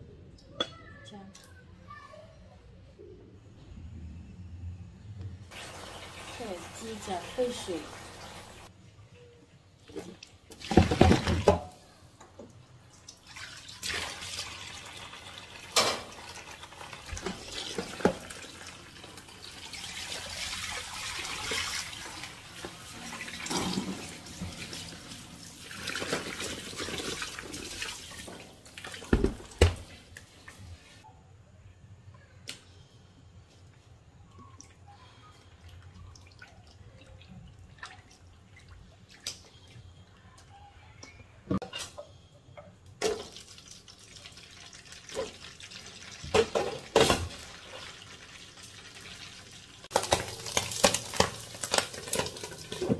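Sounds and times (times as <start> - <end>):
tap water running into sink: 15.6 - 29.8.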